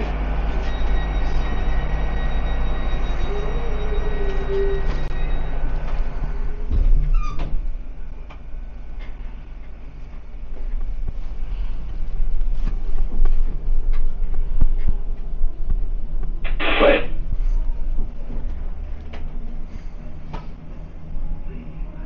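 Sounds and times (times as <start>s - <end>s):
train rumble: 0.0s - 22.0s
high whining tones: 0.5s - 7.5s
train wheel squeal: 0.6s - 5.7s.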